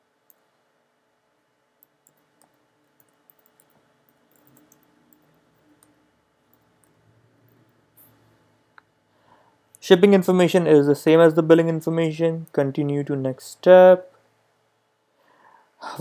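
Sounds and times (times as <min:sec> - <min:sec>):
typing on a computer keyboard: 0:01.8 - 0:05.9.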